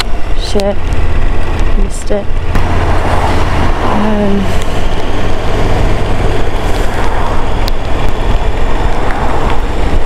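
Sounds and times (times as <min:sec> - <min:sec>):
motorcycle rumble: 0:00.0 - 0:10.0
wind rush on microphone: 0:00.0 - 0:10.0.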